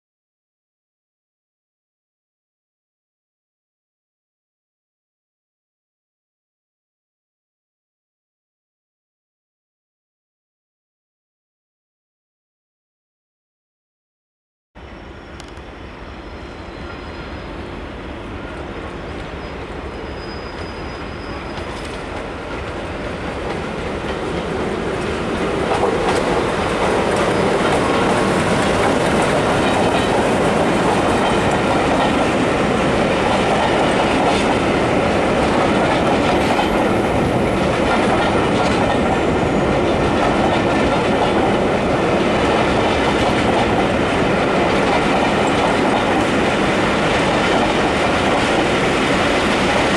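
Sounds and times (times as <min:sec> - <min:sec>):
train wheels on rails: 0:14.8 - 0:49.9.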